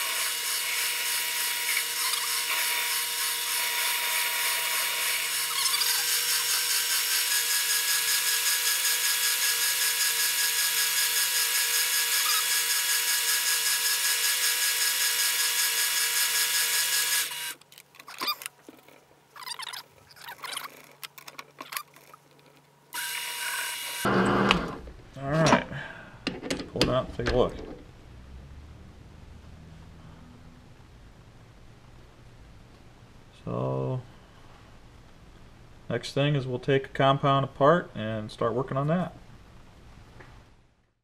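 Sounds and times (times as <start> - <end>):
metal lathe whining: 23.0 - 24.8.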